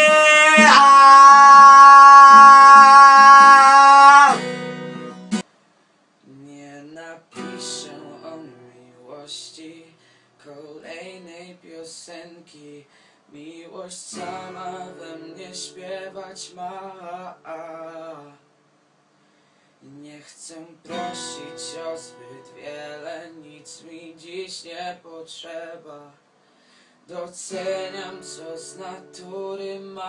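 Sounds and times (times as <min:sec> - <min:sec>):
man singing: 0:00.0 - 0:04.5, 0:06.2 - 0:18.4, 0:19.8 - 0:26.2, 0:27.1 - 0:30.0
acoustic guitar strumming: 0:00.0 - 0:05.4, 0:07.3 - 0:09.2, 0:14.1 - 0:18.3, 0:20.8 - 0:24.6, 0:27.4 - 0:30.0.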